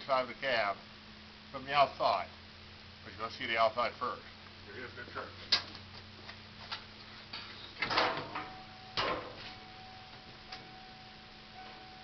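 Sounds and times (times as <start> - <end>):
low hum: 6.0 - 12.0
faint high tone: 8.4 - 12.0.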